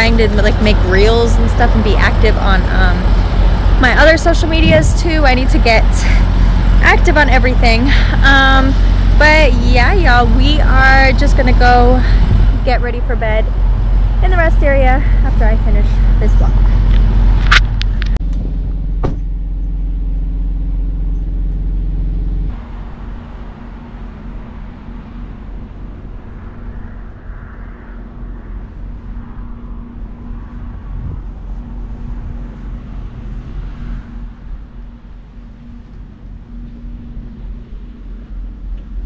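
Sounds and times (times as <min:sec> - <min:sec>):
diesel trucks idling: 0:00.0 - 0:26.6.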